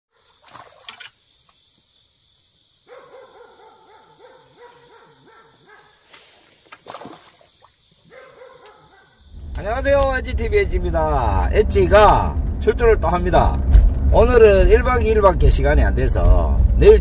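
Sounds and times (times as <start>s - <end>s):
dog barking: 2.8s - 6.0s, 8.0s - 9.2s.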